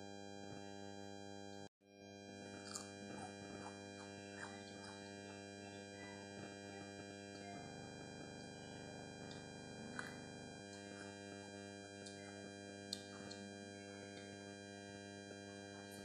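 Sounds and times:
faint eating clicks: 2.6s - 7.8s.

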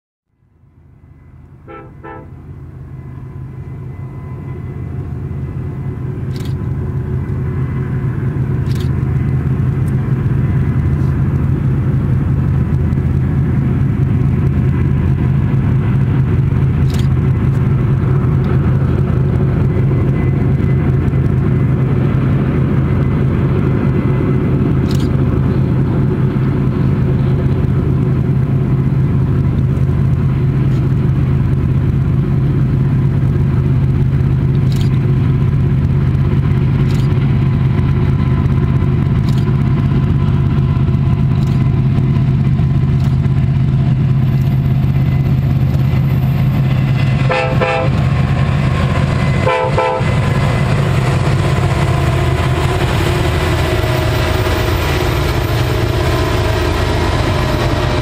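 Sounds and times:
diesel locomotive engines droning: 0.3s - 58.0s
locomotive horn toots: 1.5s - 6.2s, 47.2s - 48.1s, 49.3s - 50.4s
camera clicks: 8.6s - 9.0s, 16.8s - 17.1s, 24.8s - 25.1s, 34.6s - 35.0s, 36.8s - 37.2s, 39.2s - 39.5s.

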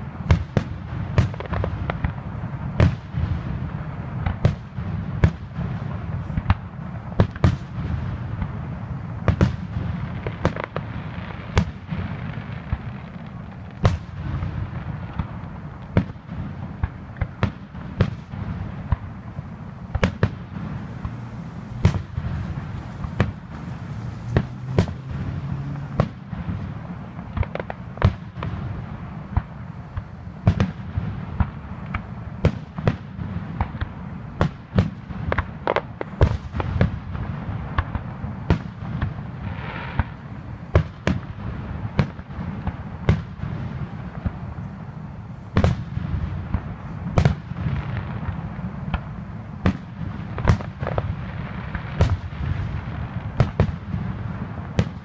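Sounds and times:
firework shells bursting: 16.7s - 28.2s
low rumble: 18.6s - 27.4s.

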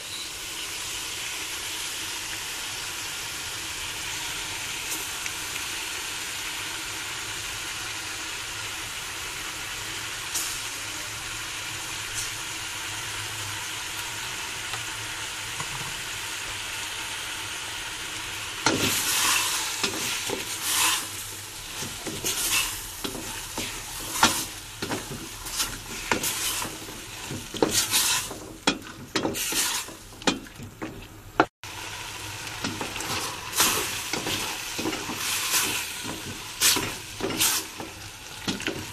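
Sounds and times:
vegetables sizzling in a pan: 0.0s - 38.9s
spatula scraping a pan: 18.7s - 31.1s, 32.6s - 38.9s.

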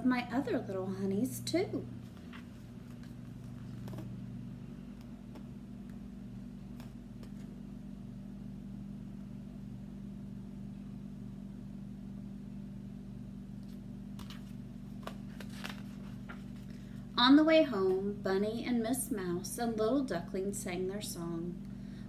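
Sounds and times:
low room hum: 0.0s - 22.0s
book handling clicks and rustles: 2.0s - 4.2s, 4.9s - 6.1s, 6.7s - 7.6s, 13.6s - 17.0s.

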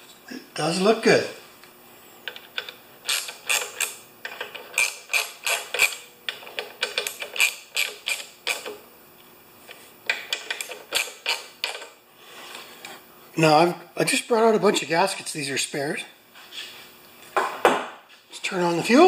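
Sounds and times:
hand ratchet clicking: 2.3s - 8.8s, 10.1s - 11.9s.

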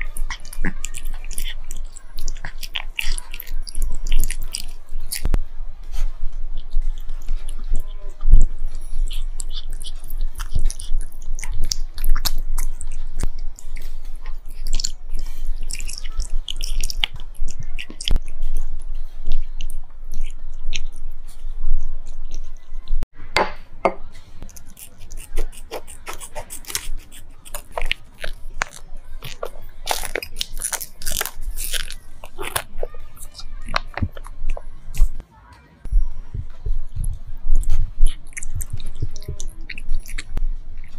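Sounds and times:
cat chewing and licking: 0.0s - 23.1s, 24.4s - 35.2s, 35.9s - 40.9s
steady low hum: 0.0s - 40.9s
wet mouth clicks: 37.0s - 40.9s.

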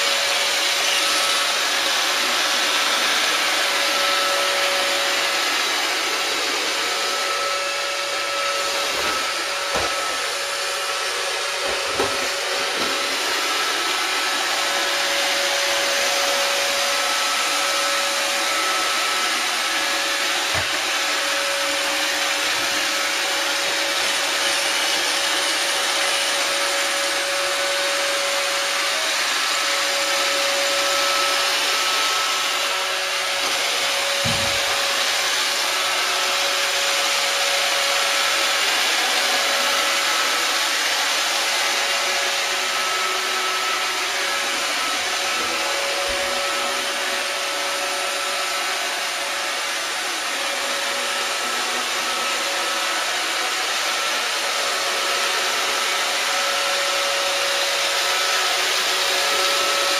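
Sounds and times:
robot vacuum whirring: 0.0s - 59.9s.

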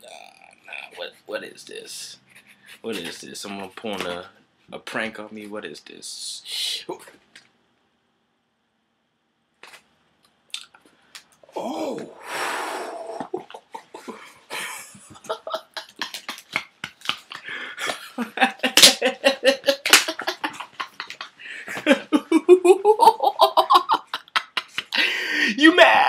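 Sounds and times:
excited vocal noises: 11.4s - 14.1s, 25.4s - 26.0s
man laughing: 13.0s - 26.0s.

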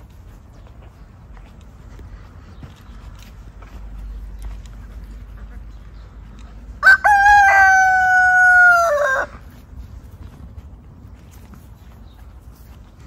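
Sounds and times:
rooster crowing: 6.8s - 9.4s.

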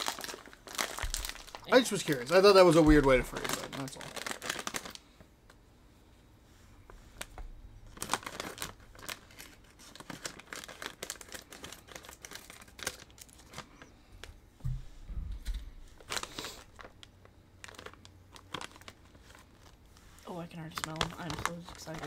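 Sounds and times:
plastic bag crinkling: 0.0s - 5.1s, 7.1s - 14.3s, 15.4s - 22.0s
dull low thump: 14.6s - 15.8s.

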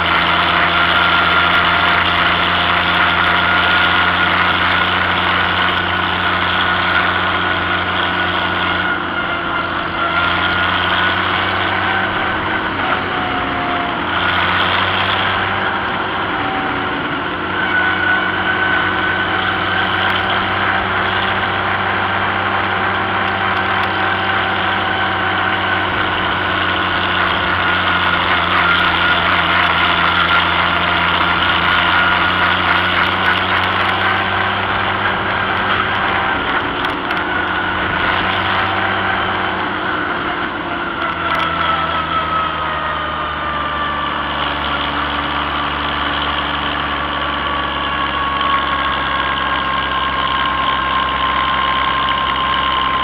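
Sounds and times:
tractor engine running: 0.0s - 53.0s.

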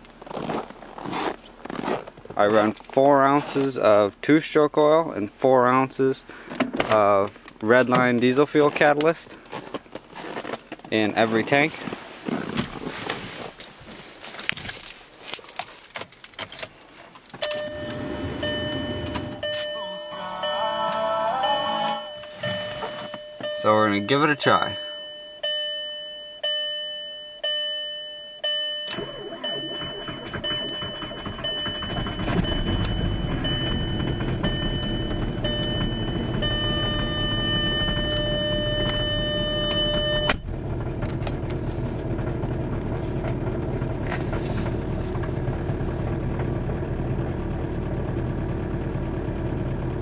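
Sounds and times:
diesel engine cranking and idling: 13.7s - 25.6s, 28.4s - 50.0s
dashboard chime: 17.4s - 40.4s.

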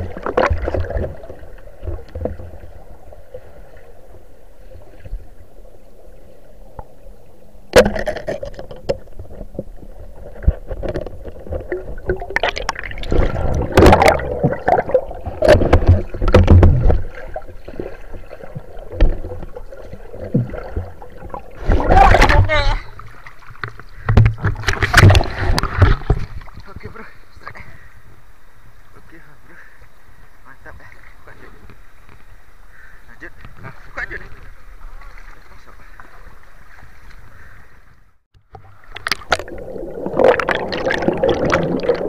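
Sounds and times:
churning and knocking underwater: 0.0s - 5.3s, 7.7s - 26.9s, 38.3s - 42.0s
low rushing of river water: 0.0s - 42.0s.

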